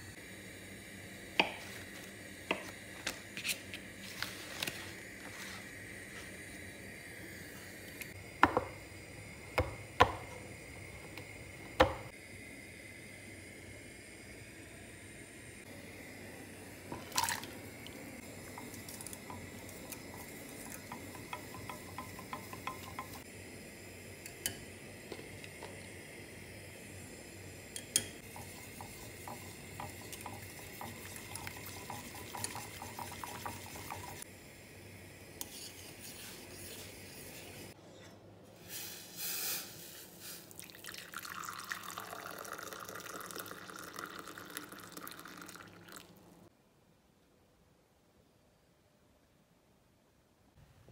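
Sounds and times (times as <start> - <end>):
liquid pouring into cup: 16.9 - 23.2, 40.5 - 46.2
spoon scraping metal saucepan: 35.4 - 37.6.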